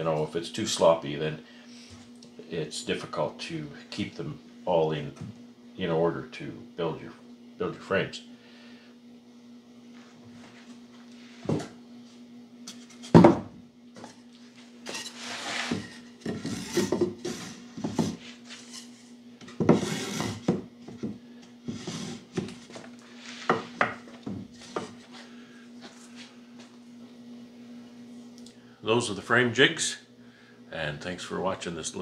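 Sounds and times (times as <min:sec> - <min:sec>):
steady low hum: 0:00.0 - 0:32.0
wood scraping and sliding: 0:14.8 - 0:20.6, 0:21.7 - 0:25.1
wood knocking on wood: 0:23.5 - 0:25.0.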